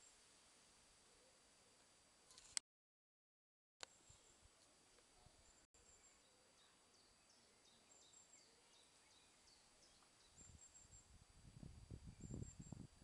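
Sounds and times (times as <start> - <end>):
small birds chirping: 3.8 - 11.2.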